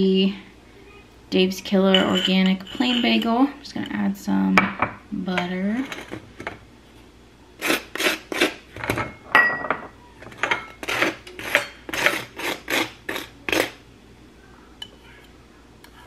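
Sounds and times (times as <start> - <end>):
knife scraping butter on bagel: 10.8 - 13.8.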